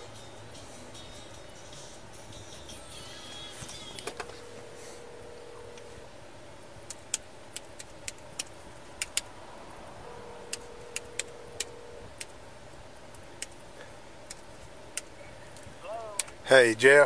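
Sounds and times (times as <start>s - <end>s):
steady background hum: 0.0s - 17.0s
laptop keys tapping: 6.8s - 9.3s, 10.4s - 12.4s, 13.1s - 13.6s, 14.2s - 16.4s.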